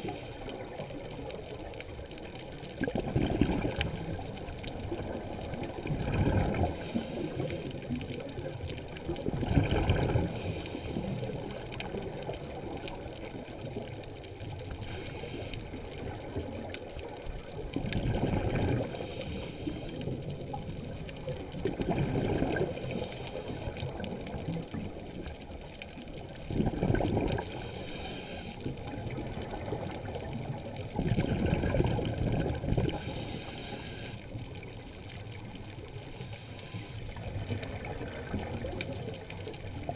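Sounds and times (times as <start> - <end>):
exhaled bubbles underwater: 0.0 - 39.9
regulator inhalation hiss: 14.8 - 15.6, 27.6 - 28.6, 33.0 - 34.2.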